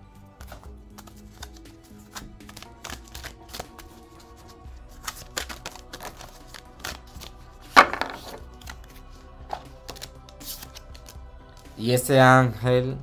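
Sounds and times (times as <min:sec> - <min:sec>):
background music: 0:00.0 - 0:13.0
cards shuffling on table: 0:00.4 - 0:11.7
knock on wooden table: 0:07.8 - 0:08.4.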